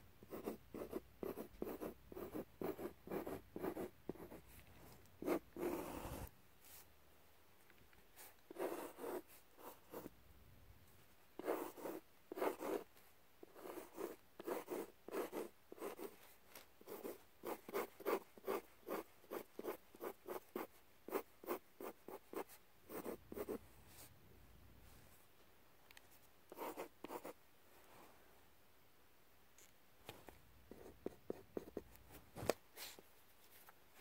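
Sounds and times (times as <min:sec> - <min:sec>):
pencil scratching on paper: 0:00.2 - 0:04.5, 0:05.2 - 0:06.3, 0:08.2 - 0:10.1, 0:11.4 - 0:16.2, 0:16.8 - 0:23.6, 0:26.5 - 0:27.4.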